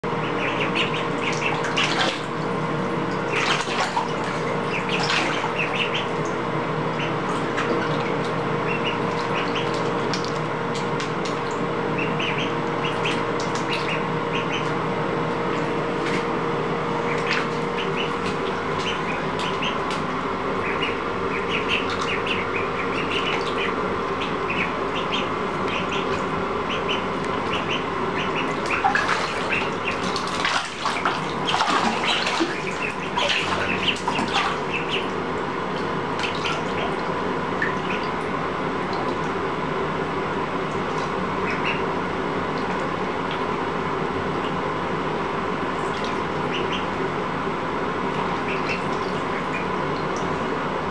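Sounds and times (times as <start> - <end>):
ducklings peeping: 0.0 - 39.4, 40.5 - 44.7, 45.5 - 47.1, 48.1 - 50.5
water splashing: 0.8 - 6.4, 28.4 - 35.2.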